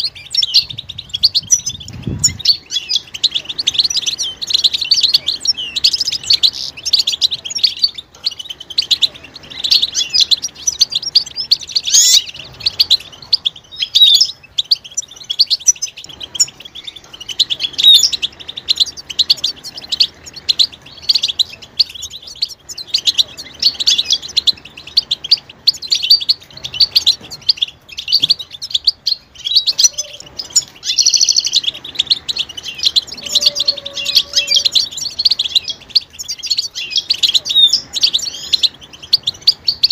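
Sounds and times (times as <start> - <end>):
finches twittering and calling: 0.0 - 39.9.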